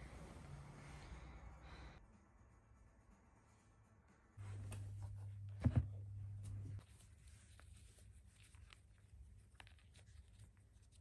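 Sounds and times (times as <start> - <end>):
low hum: 4.4 - 6.8.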